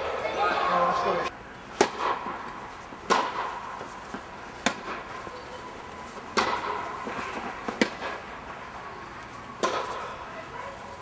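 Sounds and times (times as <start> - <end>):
tennis ball struck by rackets: 1.7 - 5.1, 6.3 - 8.3, 9.6 - 10.1.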